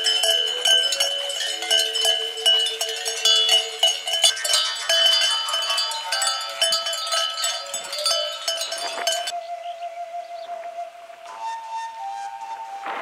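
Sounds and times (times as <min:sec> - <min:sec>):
sheep bells clanking: 0:00.0 - 0:09.4.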